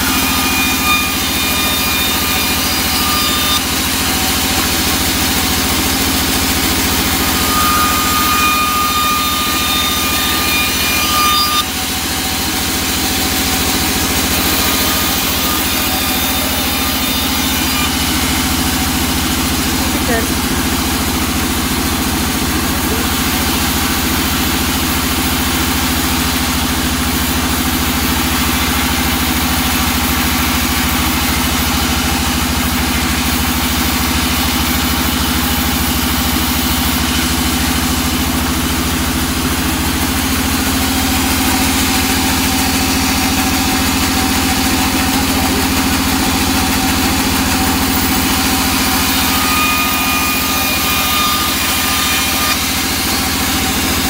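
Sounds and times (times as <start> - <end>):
thin high whining tones: 0.0 - 5.7, 6.4 - 11.8
band saw ripping wood: 0.0 - 18.9.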